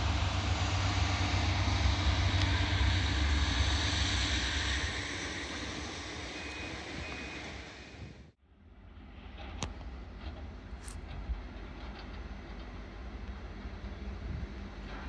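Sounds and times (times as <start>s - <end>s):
train passing rumble: 0.0s - 15.0s.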